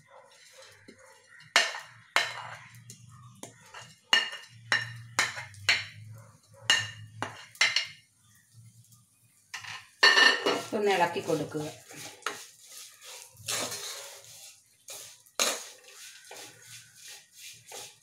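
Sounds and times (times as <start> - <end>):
spatula clinking on earthenware pot: 0.6 - 2.8, 3.4 - 6.0, 6.7 - 8.0, 9.6 - 17.2.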